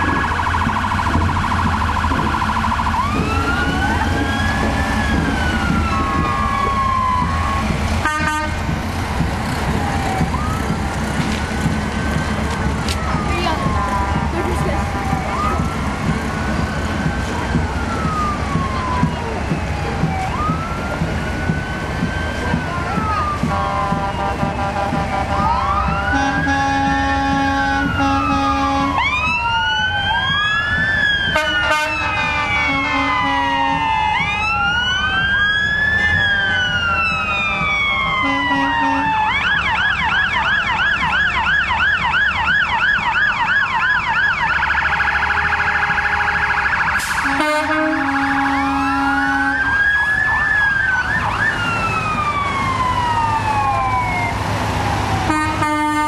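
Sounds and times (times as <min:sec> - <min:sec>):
siren fast yelp: 0:00.0 - 0:08.5, 0:13.0 - 0:15.8, 0:16.9 - 0:54.3
sirens wailing: 0:00.0 - 0:56.0
short low horn blasts: 0:08.0 - 0:08.7, 0:26.1 - 0:29.0, 0:31.4 - 0:33.8, 0:36.4 - 0:39.1, 0:45.5 - 0:49.7, 0:55.3 - 0:56.0.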